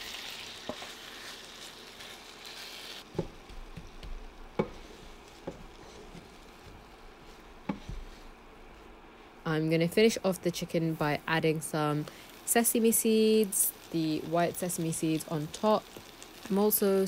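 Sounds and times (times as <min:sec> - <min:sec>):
chicken sizzling in a frying pan: 0:00.0 - 0:08.4, 0:11.0 - 0:17.0
wooden spoon knocking against pan: 0:03.1 - 0:04.8.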